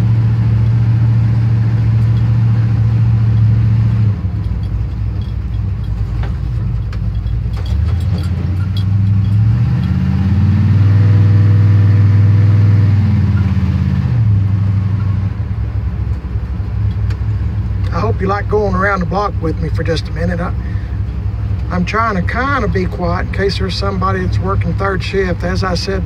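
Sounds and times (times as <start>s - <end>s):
pickup truck engine from cab: 0.0s - 26.0s.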